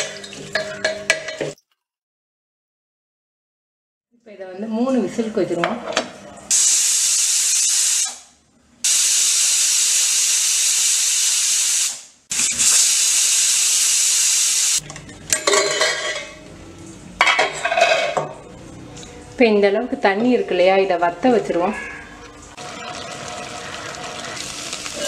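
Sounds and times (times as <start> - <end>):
pressure cooker whistling steam: 6.5 - 14.8
metal lid clatter: 15.3 - 16.3.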